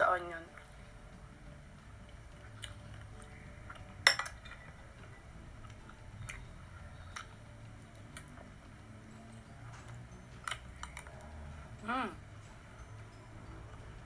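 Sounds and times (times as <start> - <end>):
cutlery clinking on plates: 4.1 - 4.6.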